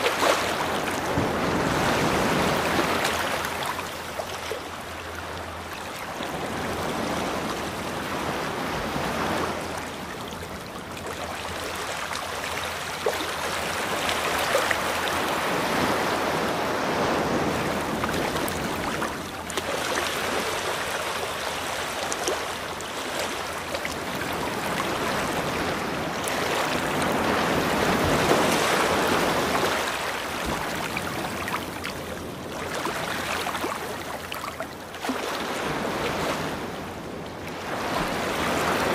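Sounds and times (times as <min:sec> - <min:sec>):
ocean waves washing ashore: 0:00.0 - 0:38.9.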